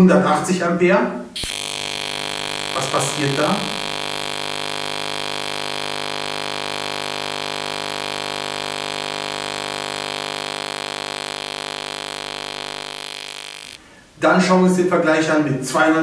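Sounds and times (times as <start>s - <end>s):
welding arc buzzing: 1.3s - 13.9s.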